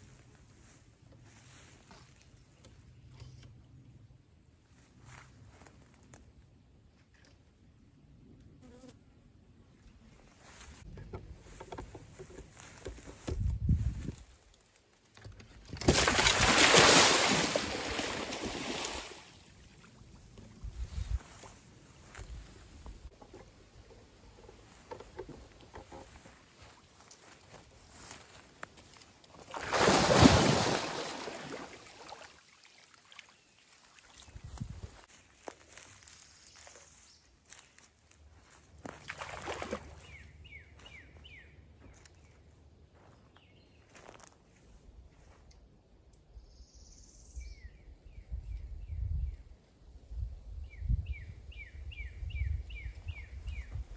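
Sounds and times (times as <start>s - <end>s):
churning water: 15.8s - 19.3s, 29.4s - 33.2s
alligator splashing into water: 15.8s - 19.4s, 29.4s - 32.4s, 39.0s - 40.2s
rustle and crunch in leaf litter: 33.7s - 38.9s.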